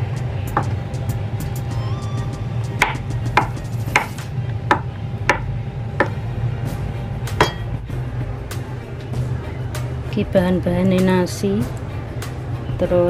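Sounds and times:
knife chopping on wooden board: 2.8 - 6.2.

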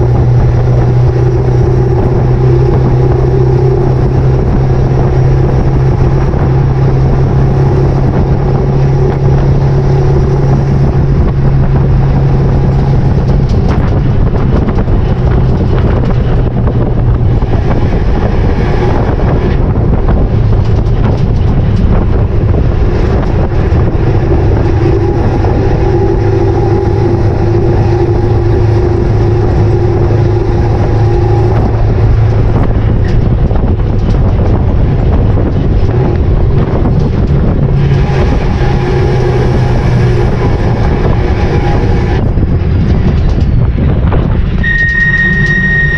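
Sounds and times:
diesel truck rumble: 0.0 - 45.9
low drone: 0.0 - 45.9
road noise: 0.0 - 45.9
wind noise on microphone: 0.0 - 45.9.

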